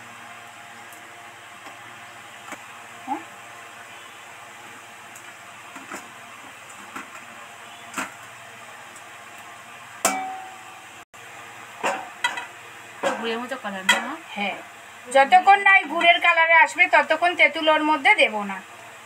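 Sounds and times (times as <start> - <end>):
syrup simmering with hiss and pops: 0.0 - 10.1.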